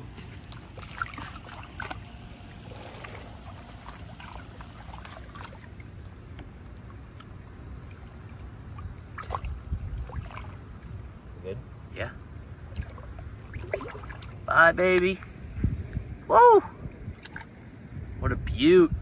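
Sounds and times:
water lapping: 0.0 - 11.3, 12.6 - 14.5
water splashing and sloshing: 0.0 - 16.1, 16.8 - 17.9
steady low rumble: 0.0 - 19.0.

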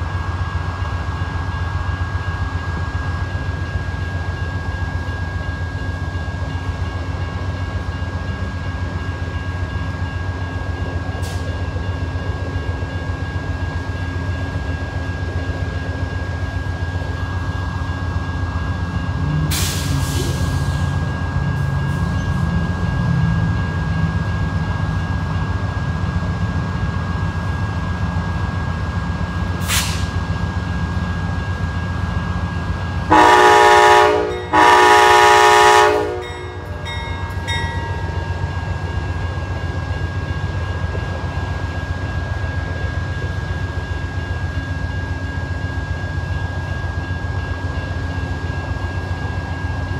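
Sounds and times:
diesel locomotive engine rumble: 0.0 - 49.9
short air hisses: 29.6 - 30.1
train air horn blasts: 33.1 - 36.4.

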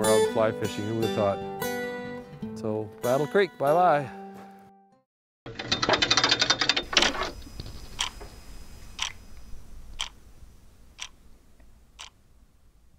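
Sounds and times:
clock ticking: 10.0 - 10.2.

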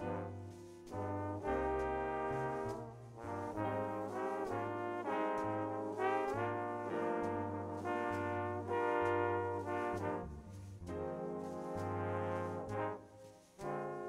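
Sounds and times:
double bass line: 0.0 - 14.0
trombones playing chords: 0.0 - 14.0.

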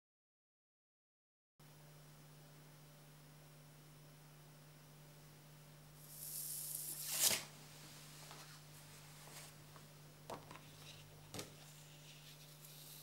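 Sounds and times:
card scraping across wooden table: 6.1 - 7.5.

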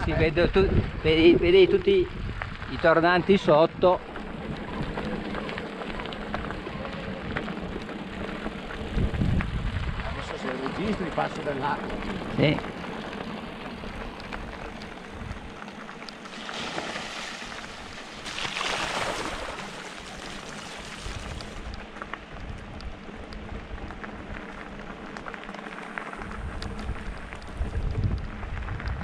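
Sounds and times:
bike tyres splashing through water: 1.4 - 23.1
small clicks: 13.9 - 16.3.

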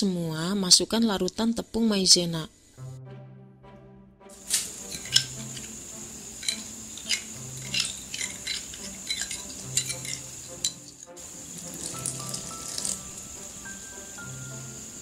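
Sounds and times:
soft background music: 2.0 - 15.0
utensils tapping a saucepan: 4.4 - 13.6
syrup bubbling: 11.2 - 13.6.

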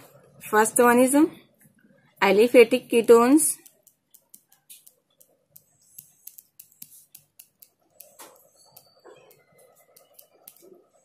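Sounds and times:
ballpoint pen writing on paper: 3.6 - 11.0.

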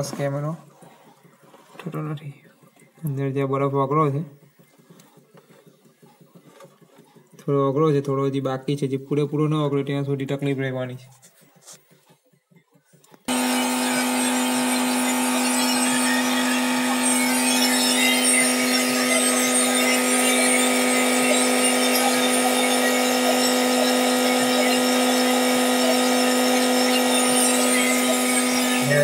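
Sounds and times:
electric blower humming: 13.2 - 29.0.

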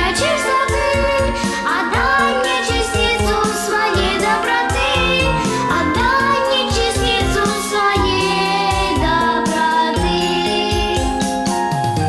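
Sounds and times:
girl singing into microphone: 0.0 - 11.2
instrumental backing with beat: 0.0 - 12.0.

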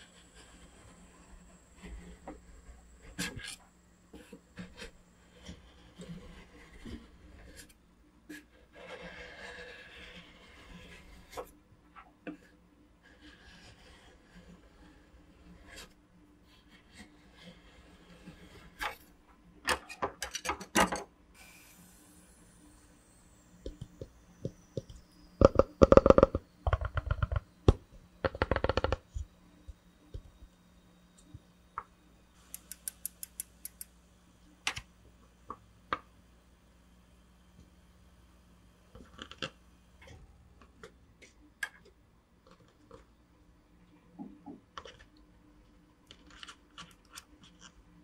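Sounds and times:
metal spatula scraping ice cream: 8.3 - 11.3.

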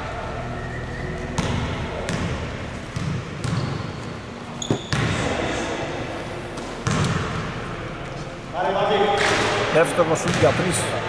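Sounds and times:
basketball bouncing on wooden floor: 1.4 - 3.9, 4.6 - 5.2, 6.8 - 7.4
shoe squeak: 3.4 - 5.7.

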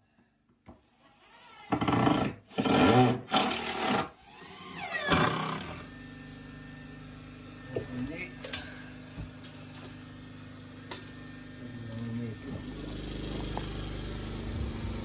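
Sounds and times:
cordless drill driving screws: 0.8 - 5.9
soft whir: 5.8 - 15.0.

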